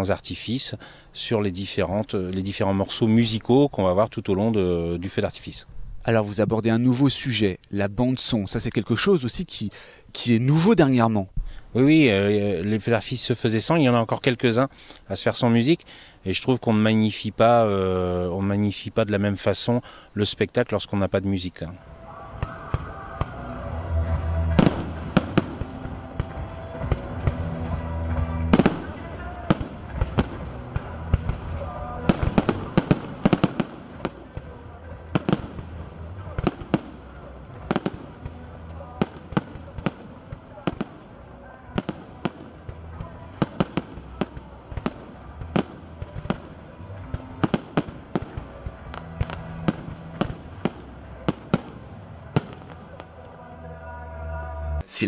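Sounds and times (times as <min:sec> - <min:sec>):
fireworks bursting: 0:21.8 - 0:53.5
music playing: 0:21.8 - 0:55.0
firework shells bursting: 0:24.5 - 0:27.5, 0:28.5 - 0:37.0.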